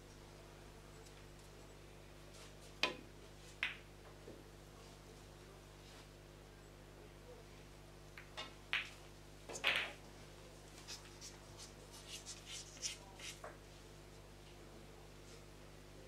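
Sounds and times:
pool balls knocking together: 0:08.2 - 0:10.0.

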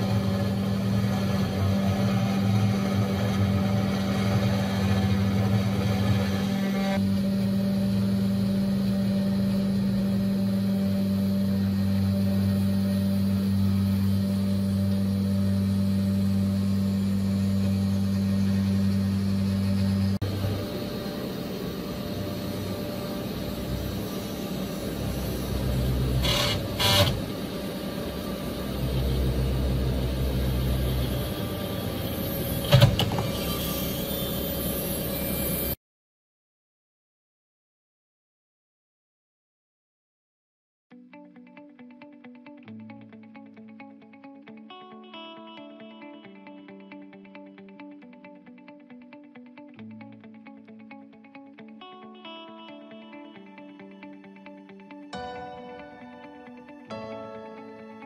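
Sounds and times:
milling machine cutting metal: 0:00.0 - 0:35.8
steady machine hum: 0:00.0 - 0:35.8
sharp cutting bursts: 0:24.7 - 0:27.6.

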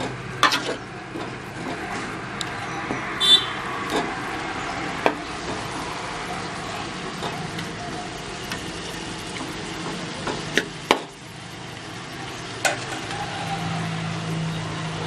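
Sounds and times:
fruit sizzling in a pan: 0:04.9 - 0:15.0.

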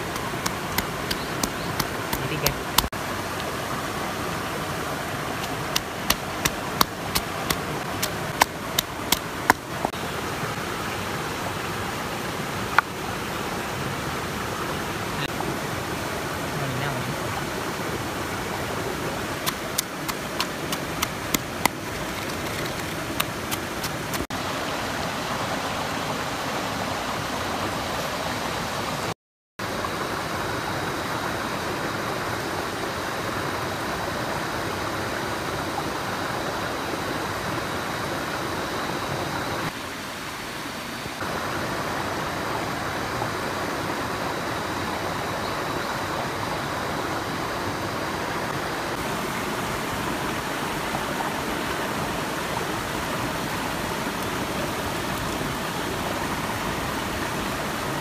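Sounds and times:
stream water rushing: 0:00.0 - 0:58.0.

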